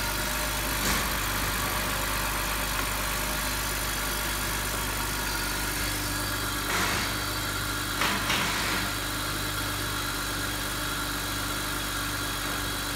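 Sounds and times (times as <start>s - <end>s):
car engine idling: 0.0s - 7.7s.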